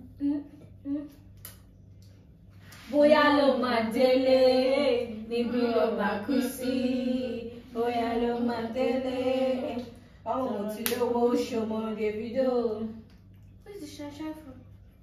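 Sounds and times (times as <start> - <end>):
woman singing chant-like melody: 2.8 - 12.9.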